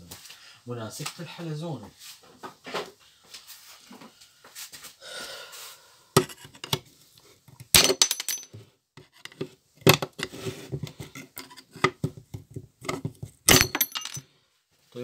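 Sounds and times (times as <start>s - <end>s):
screwdriver clinking on metal: 7.8s - 8.6s, 13.5s - 14.2s.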